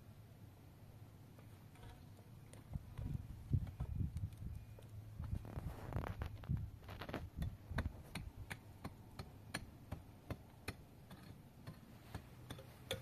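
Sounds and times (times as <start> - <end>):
hand tool scraping: 5.6 - 13.0.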